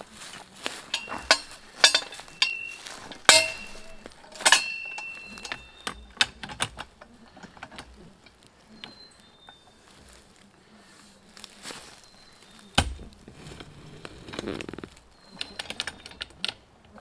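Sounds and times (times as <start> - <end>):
light metal clicks: 0.6 - 10.2.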